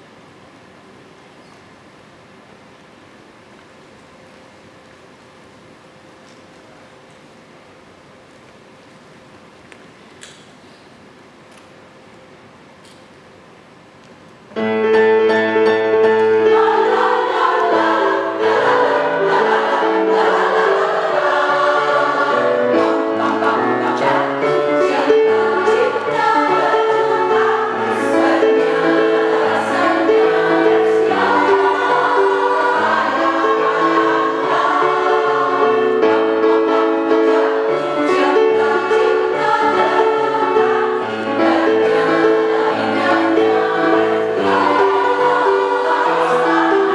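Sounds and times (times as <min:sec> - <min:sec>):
choir singing: 0:14.7 - 0:46.9.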